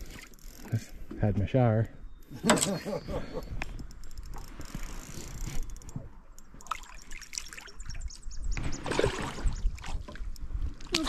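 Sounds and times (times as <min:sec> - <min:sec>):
water lapping against metal boat: 0:04.3 - 0:11.0.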